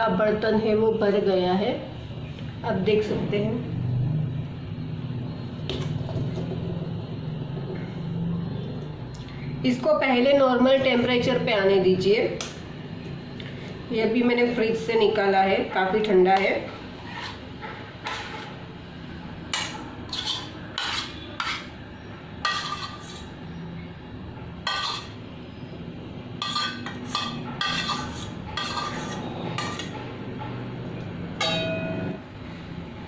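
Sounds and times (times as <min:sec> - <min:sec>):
metal spoon scraping steel bowl: 0:16.9 - 0:18.7, 0:19.5 - 0:21.8, 0:22.4 - 0:23.4, 0:24.6 - 0:25.2, 0:26.4 - 0:30.0.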